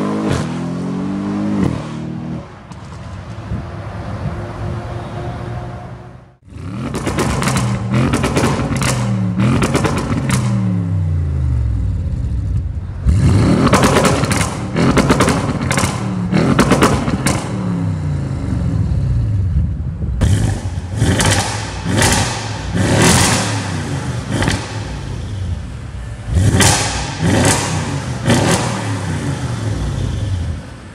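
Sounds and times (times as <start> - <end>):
car engine revving: 5.8 - 19.5, 20.2 - 30.9.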